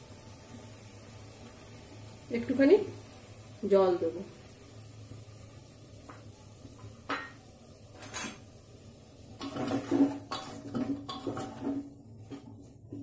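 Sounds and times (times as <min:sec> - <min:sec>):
spoon knocking and scraping pot: 0:08.0 - 0:08.4, 0:09.4 - 0:13.0.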